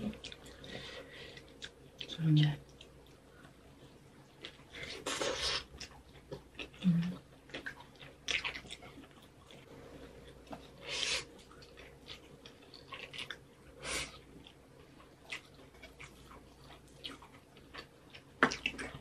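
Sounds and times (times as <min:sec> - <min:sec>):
chewing and biting food: 0:02.7 - 0:19.0.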